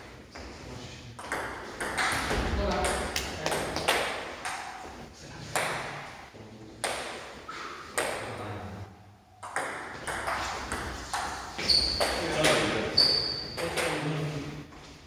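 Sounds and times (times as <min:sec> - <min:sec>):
ping-pong ball hits: 0:01.2 - 0:04.8, 0:09.4 - 0:12.7.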